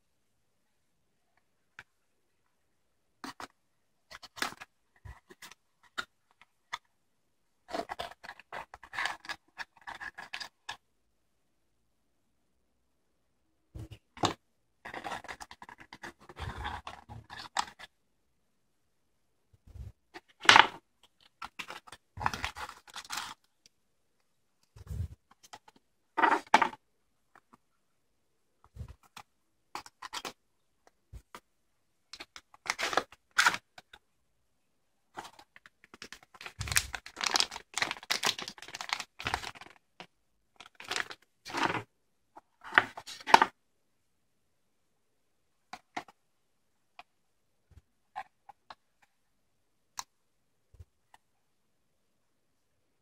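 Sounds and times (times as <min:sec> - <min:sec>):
cardboard packaging rustling: 0:21.4 - 0:23.4, 0:32.5 - 0:33.6, 0:35.2 - 0:39.8, 0:40.6 - 0:41.8.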